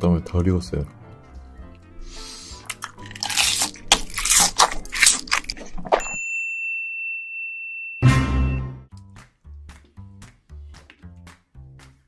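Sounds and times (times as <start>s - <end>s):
crunchy wet chewing: 2.1s - 6.0s.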